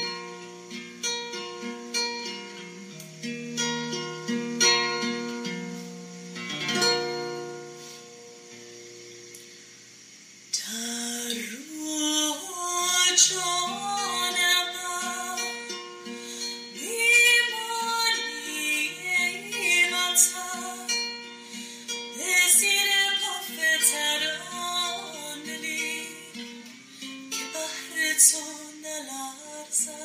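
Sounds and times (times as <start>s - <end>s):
person singing: 10.6s - 30.0s.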